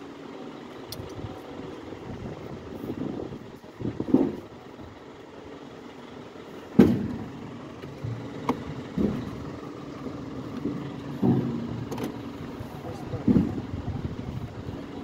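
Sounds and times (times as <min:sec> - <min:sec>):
engine hum: 0:00.0 - 0:15.0
tools clanking in engine bay: 0:10.4 - 0:13.6.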